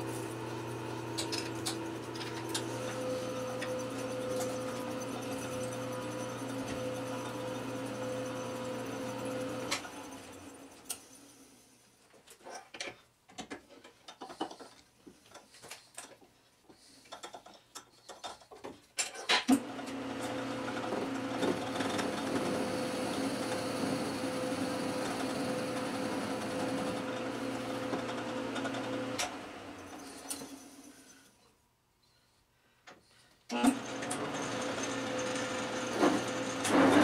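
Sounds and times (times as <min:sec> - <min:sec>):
lathe spindle humming: 0:00.0 - 0:10.8, 0:19.6 - 0:30.9, 0:33.7 - 0:37.0
clicks and knocks of handling: 0:12.1 - 0:19.6.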